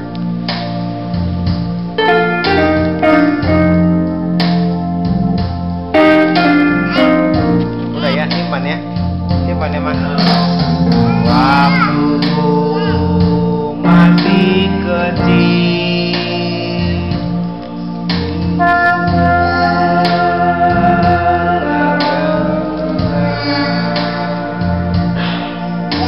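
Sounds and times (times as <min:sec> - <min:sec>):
electronic keyboard organ chords: 0:00.0 - 0:26.0
girl singing a hymn: 0:06.0 - 0:07.6, 0:11.0 - 0:17.5, 0:18.4 - 0:25.1.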